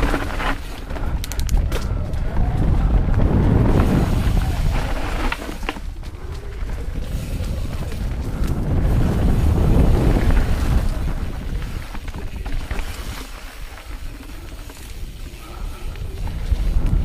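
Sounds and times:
bike clicks and knocks: 0.0 - 4.0
tyres rumbling over dirt: 0.0 - 17.0
wind on camera microphone: 0.0 - 17.0.

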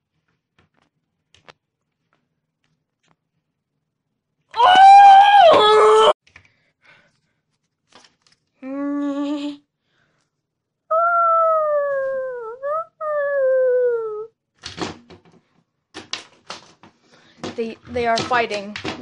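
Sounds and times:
child screeching: 4.6 - 6.2, 10.9 - 14.3
child growling: 10.9 - 14.3.

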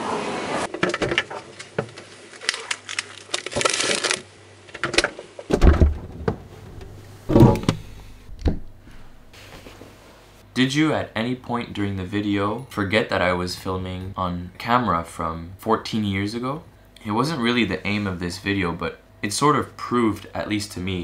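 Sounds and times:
plastic bag rustling: 1.3 - 4.3
irregular clicks and knocks: 4.8 - 9.4
dull thumps: 5.5 - 9.4.

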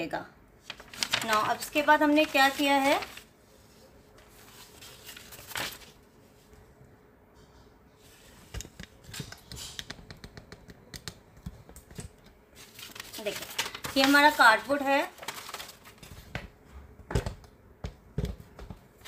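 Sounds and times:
paper and cardboard rustling: 0.6 - 6.0, 12.6 - 16.4.

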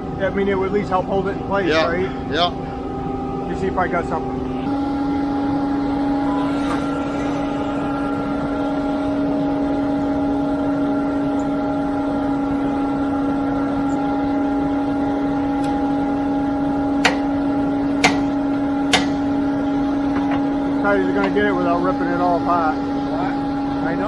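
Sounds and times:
diesel engine humming: 0.0 - 24.0
sharp knocks: 18.0 - 19.2.

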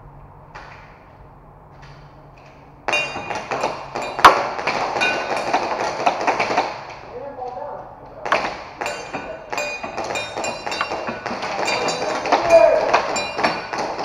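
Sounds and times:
metallic pings on steel targets: 2.9 - 6.2, 8.8 - 14.0
loud crack: 2.9 - 7.1, 8.2 - 14.0.

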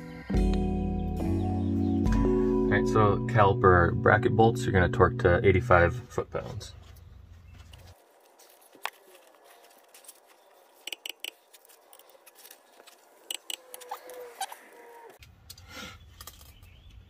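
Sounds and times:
socket wrench clicking: 10.9 - 11.4, 13.3 - 13.7.

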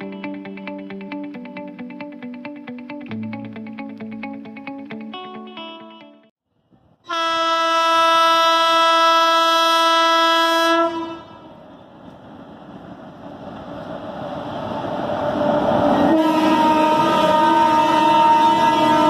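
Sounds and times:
locomotive horn blast: 7.1 - 11.6, 16.0 - 19.0
train rumbling: 11.2 - 19.0.

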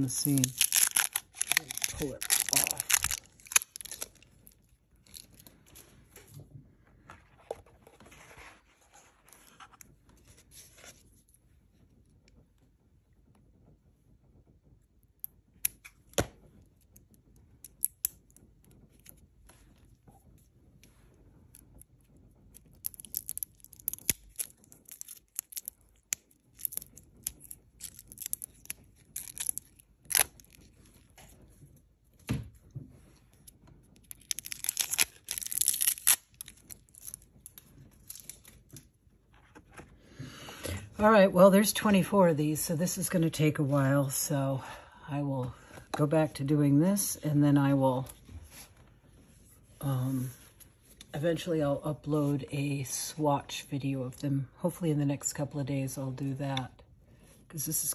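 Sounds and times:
plastic wrap crinkling and tearing: 0.0 - 5.8, 22.5 - 31.6, 33.4 - 39.9.

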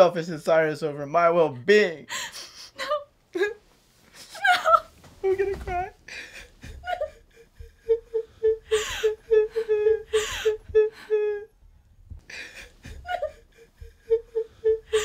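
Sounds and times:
person sobbing: 4.2 - 15.0.

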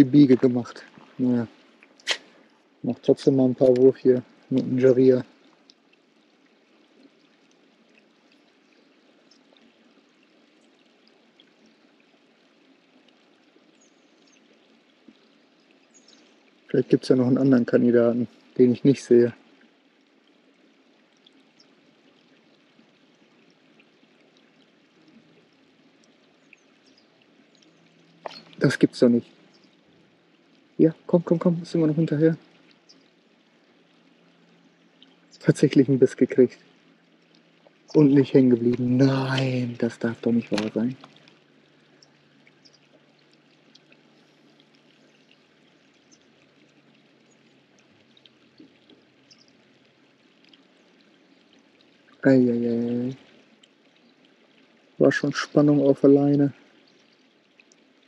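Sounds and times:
faint outdoor hiss: 0.0 - 58.0
trickle of running water: 0.0 - 58.0
faint ticks: 3.5 - 16.8, 18.1 - 30.8, 32.0 - 35.8, 36.4 - 55.5, 56.5 - 58.0
tiny ticks: 5.4 - 5.9, 7.0 - 9.7, 26.0 - 29.8, 38.7 - 52.2, 53.0 - 54.1.

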